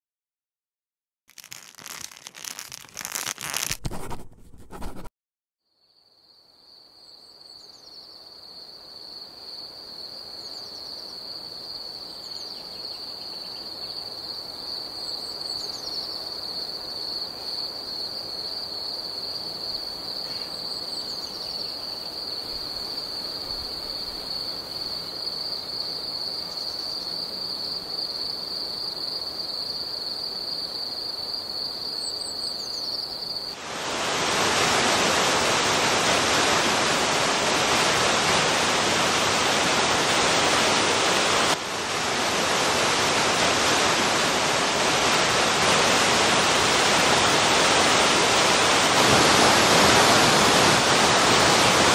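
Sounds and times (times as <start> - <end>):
high-pitched insect trill: 1.3 - 3.7, 5.7 - 33.6.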